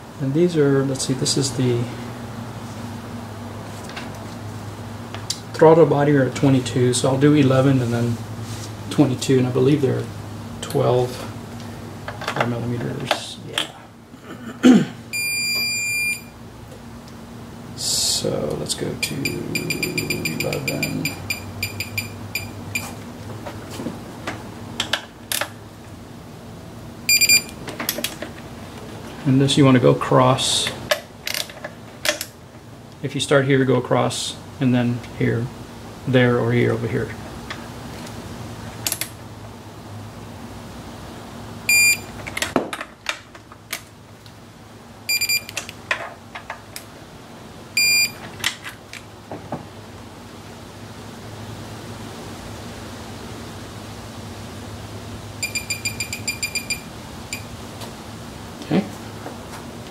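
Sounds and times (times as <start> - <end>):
long steady beep: 15.1 - 16.3, 19.0 - 22.9, 27.1 - 27.6, 41.7 - 42.1, 45.1 - 45.5, 47.8 - 48.2, 55.4 - 57.5
short electronic beeps: 15.1 - 16.3, 19.0 - 23.0, 27.1 - 27.5, 41.7 - 42.1, 45.1 - 45.5, 47.8 - 48.2, 55.4 - 57.5.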